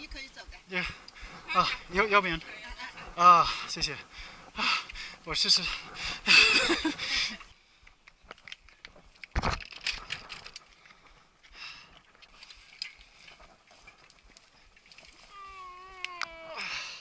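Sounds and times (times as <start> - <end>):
bike clicking and rattling: 0.0 - 16.3.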